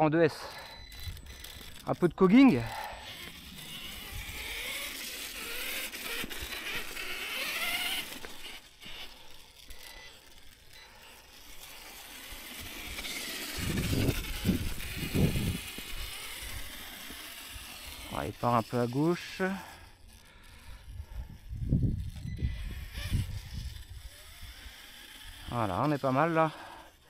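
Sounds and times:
electric motor whine: 0.0 - 27.0
drivetrain and tyre noise: 0.2 - 26.0.

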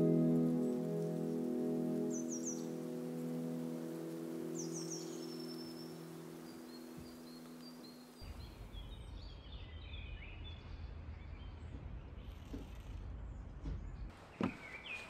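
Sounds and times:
small birds chirping: 0.0 - 15.0
steady low rumble: 8.2 - 14.1.

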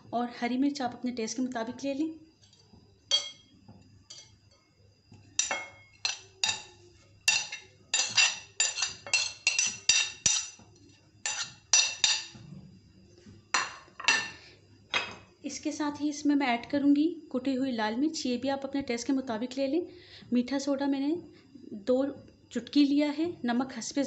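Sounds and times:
metal spoon clinking on dishes: 2.4 - 4.6, 5.4 - 12.4, 13.6 - 15.2.

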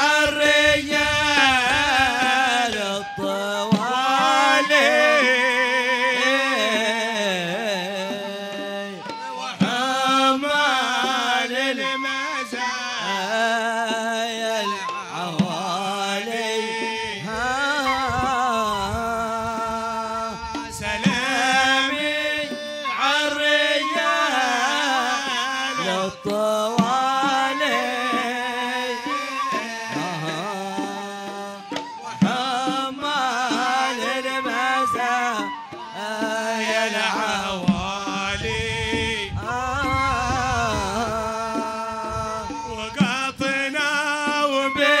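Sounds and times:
man singing ornamented lines: 0.0 - 45.0
hand drum strikes: 13.9 - 23.2, 24.7 - 44.9.

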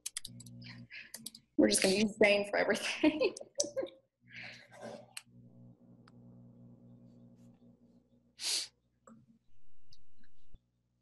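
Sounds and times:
faint hum: 0.0 - 8.3
low buzz: 5.2 - 8.0
sharp breath: 8.4 - 8.7.

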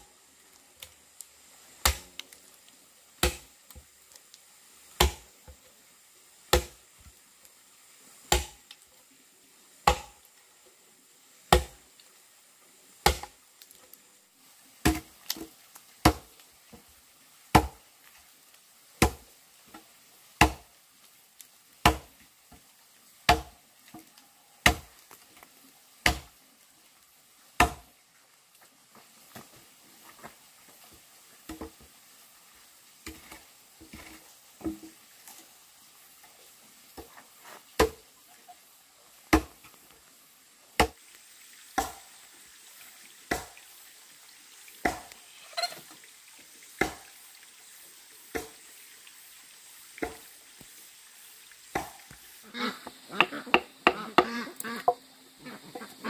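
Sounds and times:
axe chopping log: 1.8 - 2.2, 3.2 - 3.5, 5.0 - 5.3, 6.5 - 6.8, 8.3 - 8.6, 9.8 - 10.2, 11.5 - 11.8, 13.0 - 13.4, 14.8 - 15.1, 16.0 - 16.3, 17.5 - 17.8, 19.0 - 19.2, 20.4 - 20.7, 21.8 - 22.1, 23.3 - 23.5, 24.6 - 24.9, 26.0 - 26.3, 27.6 - 27.9, 37.8 - 38.0, 39.3 - 39.6, 40.8 - 41.0, 41.8 - 42.0, 43.3 - 43.6, 44.8 - 45.1, 46.8 - 47.0, 51.7 - 52.0, 53.2 - 55.0.

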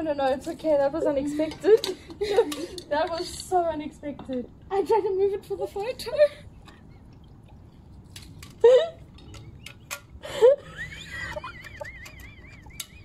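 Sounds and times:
woman laughing yelps: 10.3 - 13.0.

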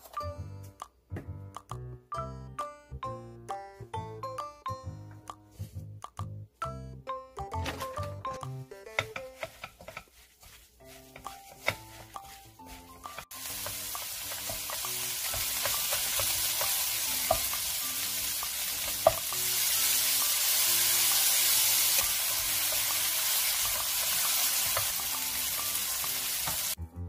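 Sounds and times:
light background music: 0.0 - 27.0
spatula tapping pan: 7.6 - 26.8
greens sizzling in a wok: 9.4 - 26.8.

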